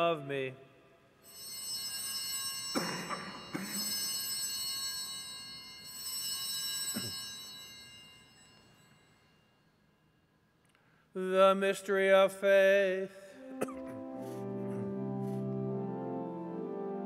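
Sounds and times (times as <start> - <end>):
altar bells ringing: 1.2 - 10.3.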